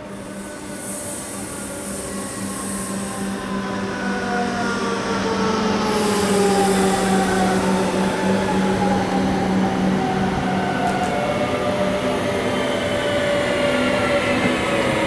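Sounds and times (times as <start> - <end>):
train running past: 0.0 - 15.0
high hiss: 0.1 - 3.4.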